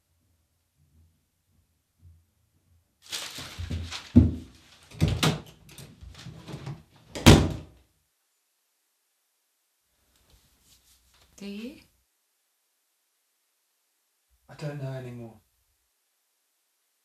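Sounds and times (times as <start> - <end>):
shuffling and knocks: 3.0 - 6.9
door shutting with thud: 6.4 - 7.7.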